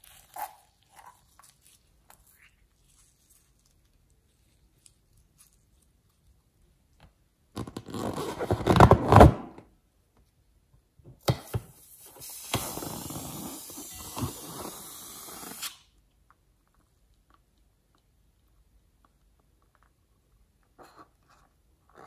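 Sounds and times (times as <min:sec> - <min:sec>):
slime squelching and crackling: 0:00.0 - 0:06.6
hissing rustle of squeezed balloon: 0:11.8 - 0:15.8.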